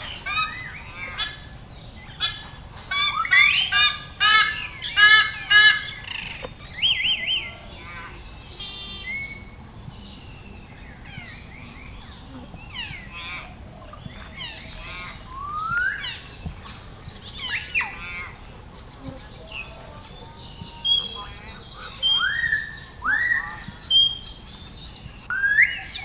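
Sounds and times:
harsh repeated bird calls: 0:00.0 - 0:26.0
scattered bird calls: 0:00.0 - 0:26.0
whistled bird phrase: 0:06.2 - 0:09.6, 0:14.4 - 0:16.3, 0:19.4 - 0:24.4, 0:25.2 - 0:26.0.

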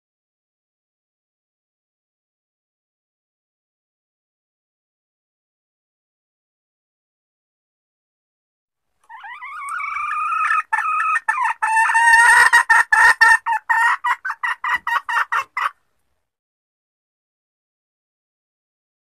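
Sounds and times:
junglefowl hen calling: 0:09.0 - 0:15.8.

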